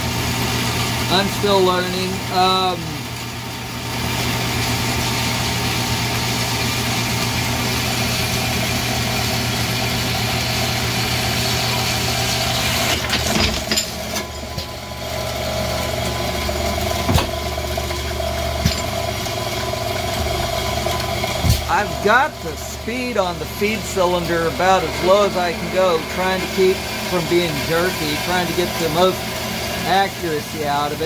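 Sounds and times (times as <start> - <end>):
motor hum: 0.0 - 31.0
bandsaw cutting metal: 8.0 - 31.0.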